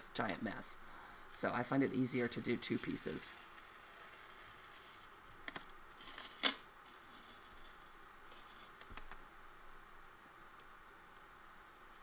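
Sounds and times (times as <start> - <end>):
masking tape ripping: 3.5 - 9.2.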